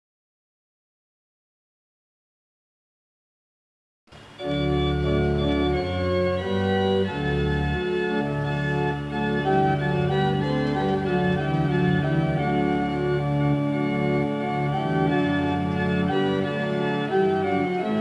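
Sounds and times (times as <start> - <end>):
church organ playing a hymn: 4.4 - 18.0.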